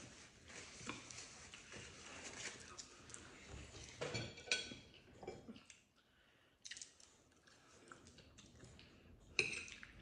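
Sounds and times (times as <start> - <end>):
chewing: 6.6 - 10.0.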